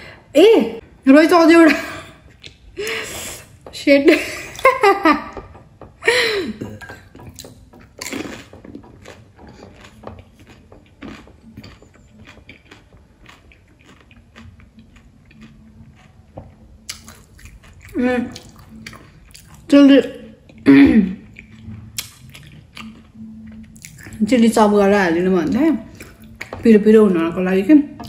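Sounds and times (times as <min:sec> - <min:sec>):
crunchy chewing: 0:07.2 - 0:19.7, 0:21.2 - 0:24.2.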